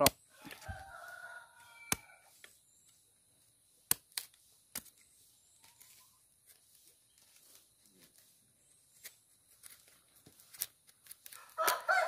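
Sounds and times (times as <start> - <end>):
machete chopping banana stalk: 0.0 - 0.2, 3.9 - 5.0.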